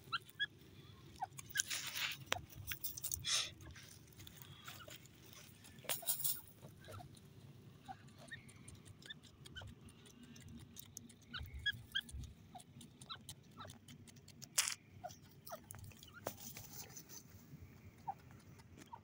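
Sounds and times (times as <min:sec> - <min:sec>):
scuffling of sand and feathers: 0:01.5 - 0:06.6, 0:15.9 - 0:19.0
rustle of wings and sand: 0:01.6 - 0:06.5.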